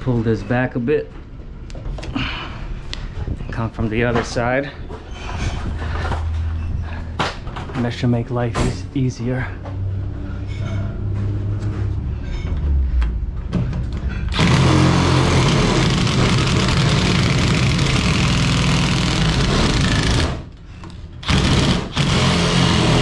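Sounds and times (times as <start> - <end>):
drill shear cutting sheet metal: 14.3 - 20.5, 21.2 - 23.0.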